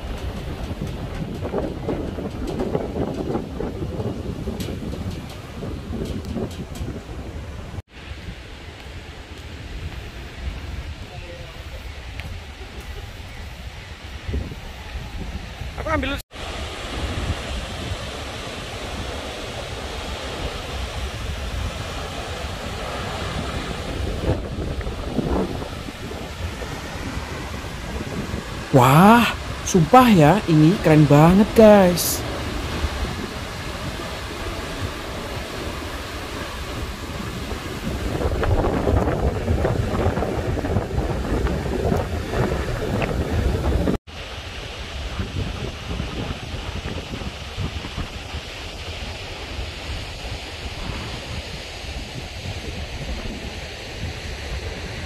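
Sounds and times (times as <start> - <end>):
wind buffeting microphone: 0.0 - 28.8, 32.2 - 55.0
waterfall roaring: 16.4 - 38.8.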